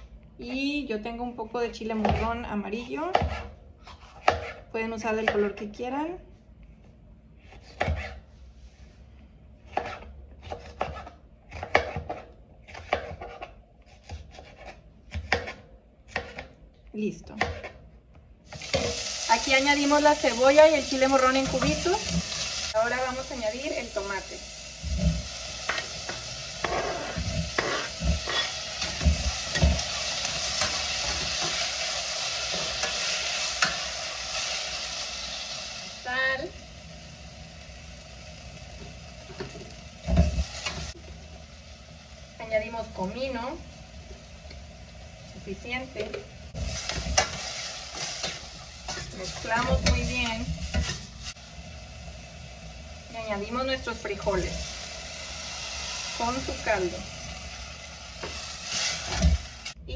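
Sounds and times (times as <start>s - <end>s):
knife chopping on cutting board: 7.6s - 8.2s, 9.7s - 16.5s
vegetables sizzling in a pot: 18.4s - 59.9s.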